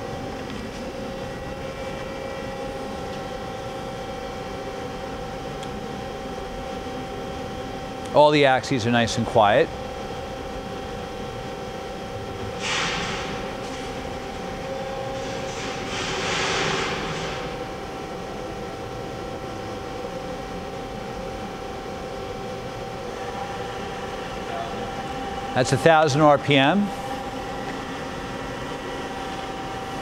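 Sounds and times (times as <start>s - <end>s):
machine hum: 0.0s - 30.0s
hiss: 12.6s - 13.4s.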